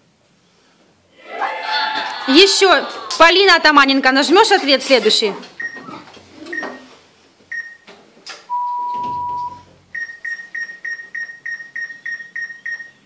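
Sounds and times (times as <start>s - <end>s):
electronic beeps: 8.5s - 13.0s
low steady electronic tone: 8.5s - 13.0s.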